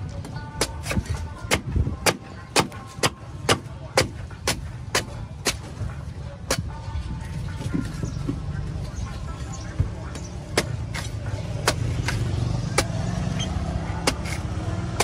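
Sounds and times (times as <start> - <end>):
cleaver chopping coconut husk: 0.2 - 6.7, 10.1 - 15.0.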